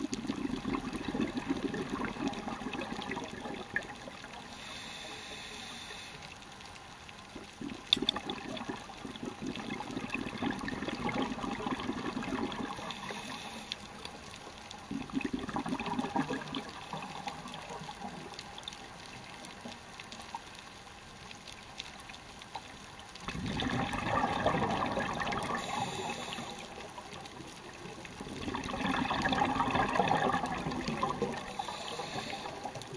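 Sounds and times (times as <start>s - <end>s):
exhaled air bubbling underwater: 0.0s - 32.9s
regulator inhalation hiss: 4.5s - 6.3s, 12.8s - 14.0s, 25.5s - 26.9s, 31.5s - 32.8s.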